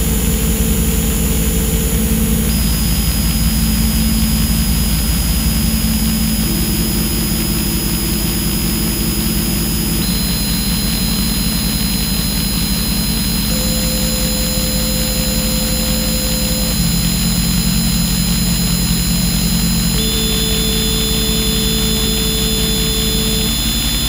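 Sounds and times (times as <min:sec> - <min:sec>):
low buzzing electronic drone: 0:00.0 - 0:24.0
held pure tones: 0:06.4 - 0:24.0
high whistle-like tone: 0:10.0 - 0:17.4.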